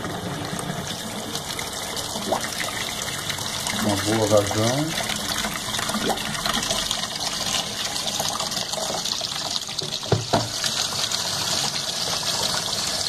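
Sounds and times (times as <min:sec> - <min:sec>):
water pouring and splashing: 0:00.0 - 0:13.0
plastic drawer knocks: 0:10.1 - 0:10.5.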